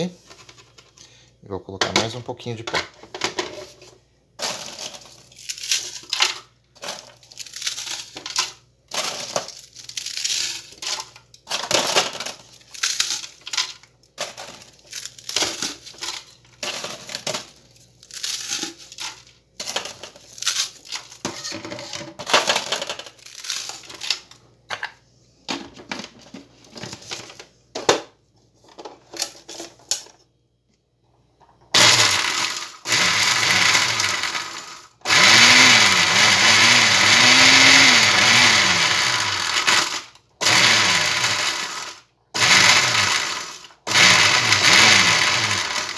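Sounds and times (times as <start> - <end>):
dry bread rustling and crunching: 5.1 - 6.2, 7.0 - 11.3, 12.4 - 21.2, 23.1 - 24.4
electric blender grinding: 31.8 - 45.9.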